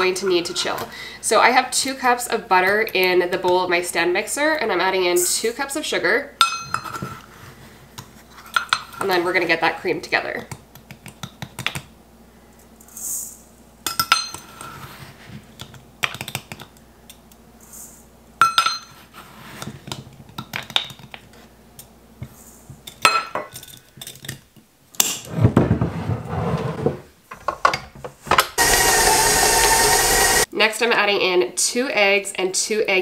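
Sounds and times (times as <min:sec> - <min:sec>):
stand mixer running with a whine: 0:28.6 - 0:30.5.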